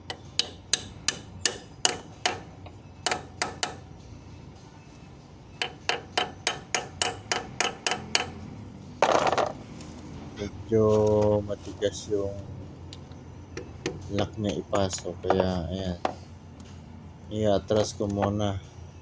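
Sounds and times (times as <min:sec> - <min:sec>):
hammer striking metal pin: 0:00.0 - 0:03.8, 0:05.6 - 0:08.4.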